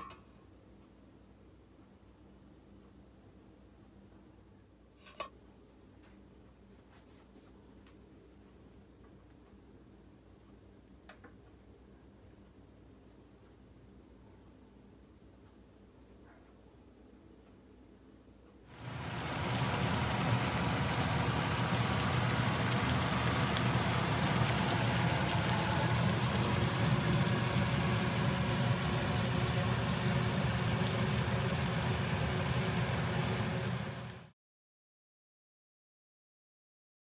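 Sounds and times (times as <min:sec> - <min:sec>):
low steady hum: 0:00.0 - 0:34.3
meat sizzling in frying pan: 0:18.8 - 0:34.3.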